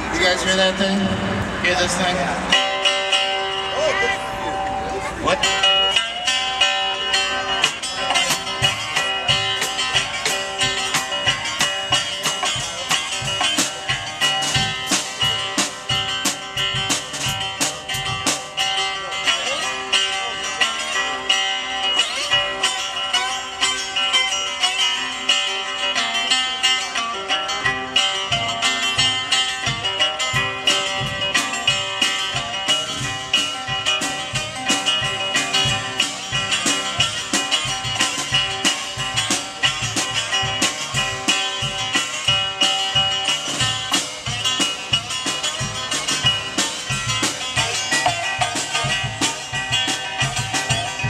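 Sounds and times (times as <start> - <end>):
picked electric guitar notes: 0.0 - 51.0
drum beat with cymbals: 5.3 - 20.9, 27.6 - 51.0.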